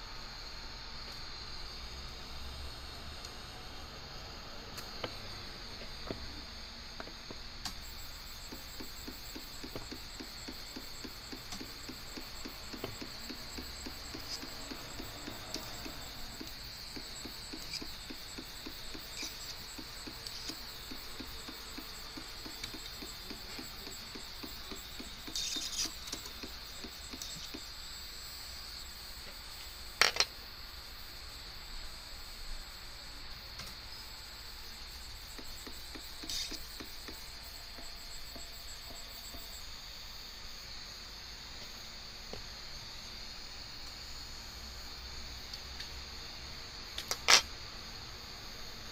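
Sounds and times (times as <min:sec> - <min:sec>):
stepper motor ticking: 0:07.0 - 0:27.7, 0:35.2 - 0:39.5.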